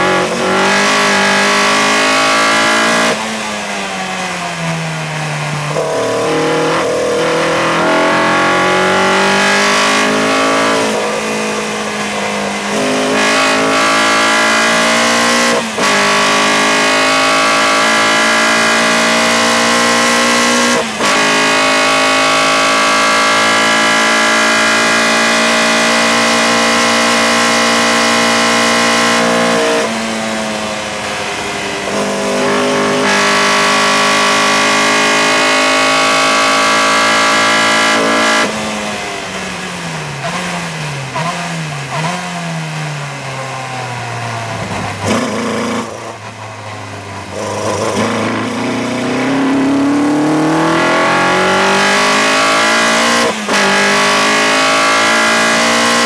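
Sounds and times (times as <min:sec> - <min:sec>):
race car engine at high revs: 0:00.0 - 0:56.0.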